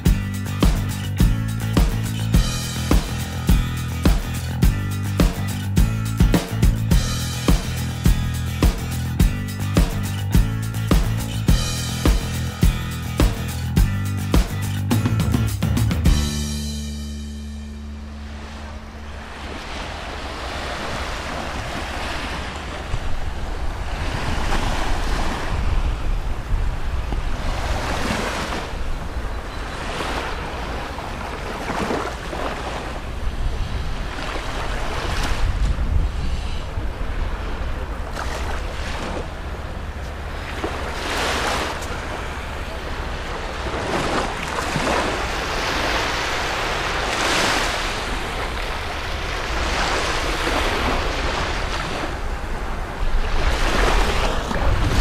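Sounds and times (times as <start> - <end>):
small waves washing on beach: 18.1 - 55.0
wind buffeting microphone: 19.4 - 31.4, 32.9 - 40.3, 43.3 - 55.0.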